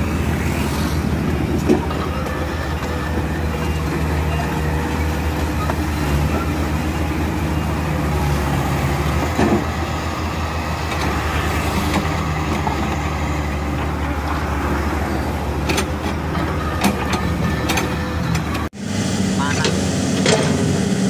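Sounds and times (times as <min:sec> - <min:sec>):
excavator diesel engine running: 0:00.0 - 0:21.0
metallic clanks: 0:19.6 - 0:20.8.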